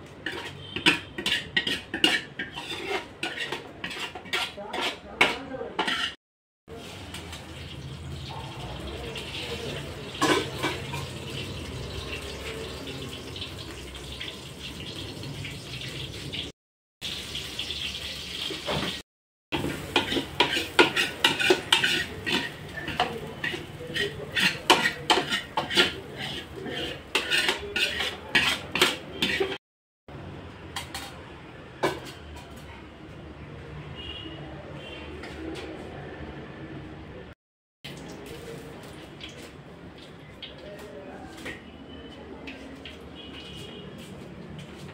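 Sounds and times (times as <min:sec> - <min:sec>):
metal ladle scraping metal vessel: 0:00.2 - 0:06.2, 0:10.2 - 0:11.2, 0:19.6 - 0:29.6.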